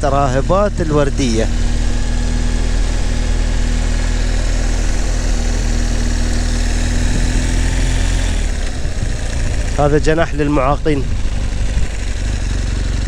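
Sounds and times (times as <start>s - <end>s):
motorcycle engine running: 0.0s - 13.0s
wind rushing over microphone: 1.5s - 13.0s.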